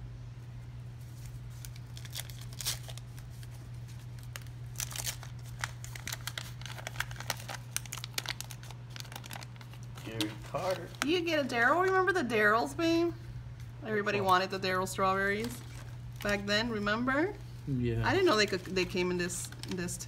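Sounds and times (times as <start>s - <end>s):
steady low hum: 0.0s - 20.0s
wax paper crinkling and tearing: 1.0s - 11.3s, 15.2s - 16.5s, 18.1s - 20.0s.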